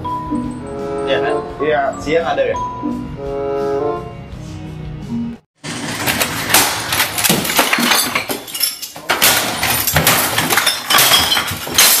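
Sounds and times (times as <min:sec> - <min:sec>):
glass bottles smashing: 0:05.6 - 0:12.0.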